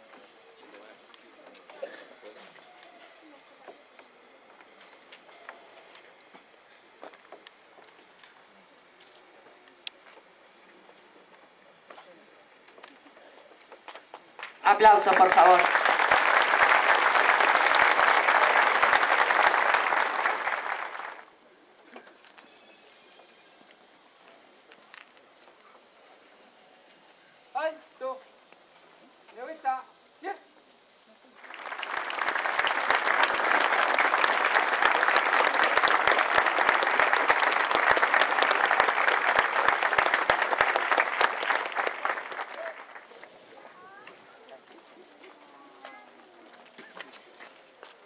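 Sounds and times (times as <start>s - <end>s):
crowd applauding: 14.6s - 21.3s, 31.4s - 43.4s.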